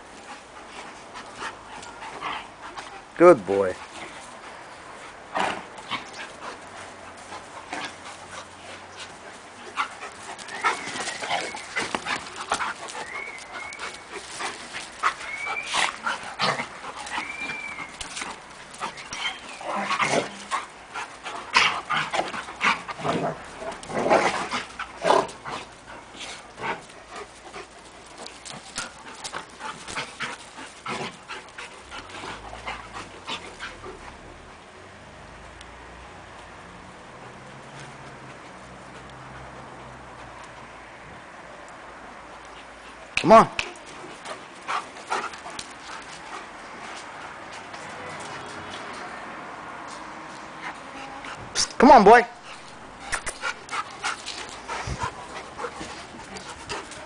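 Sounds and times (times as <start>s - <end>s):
dog panting: 0.1s - 34.4s, 42.4s - 49.0s, 52.4s - 57.0s
dogs making sharp noises: 3.8s - 34.4s, 42.2s - 57.0s.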